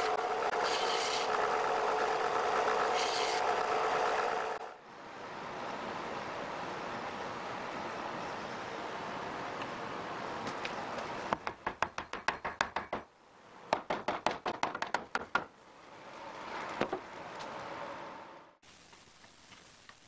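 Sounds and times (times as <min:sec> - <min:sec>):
mallet tapping on wood boards: 0:11.4 - 0:13.1, 0:13.7 - 0:15.5
steady hiss: 0:18.6 - 0:20.0.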